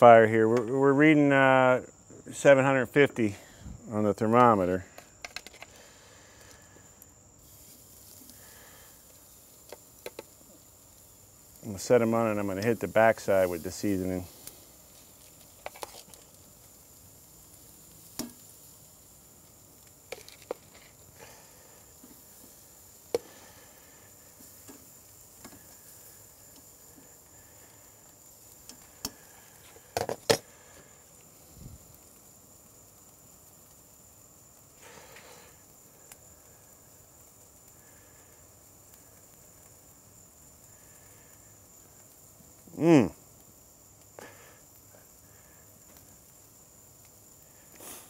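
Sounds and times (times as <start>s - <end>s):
steak sizzling on grill: 0.0s - 48.0s.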